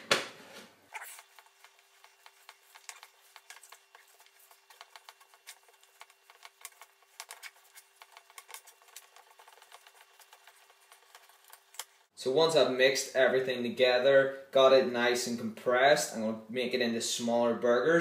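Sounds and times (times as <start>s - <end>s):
hands kneading raw mince: 0.9s - 12.1s.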